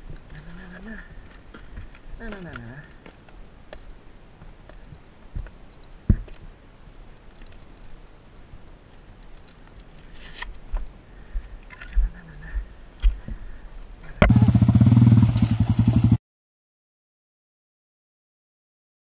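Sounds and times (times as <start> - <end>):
rustling: 0.0 - 12.2
hissing rustle: 0.1 - 11.6
boot buckles clicking and knocking: 4.7 - 6.4.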